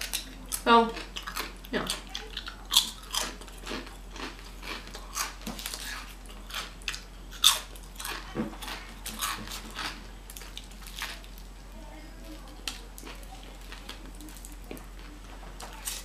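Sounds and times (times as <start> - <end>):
crunching chips: 0.0 - 11.5, 12.5 - 16.0.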